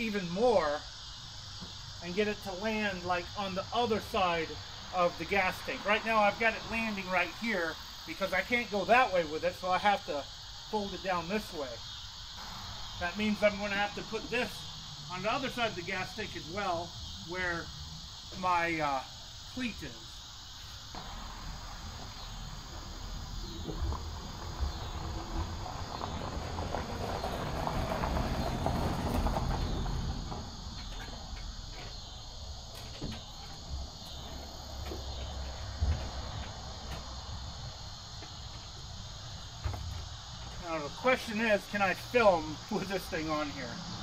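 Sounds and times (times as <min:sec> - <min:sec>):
insects chirring: 0:00.0 - 0:44.0
low rumble: 0:21.0 - 0:31.4.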